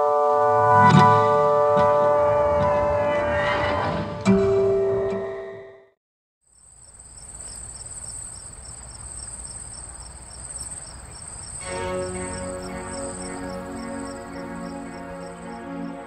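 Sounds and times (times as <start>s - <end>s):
music: 0.0s - 5.9s, 11.6s - 16.0s
crickets chirping: 6.5s - 16.0s.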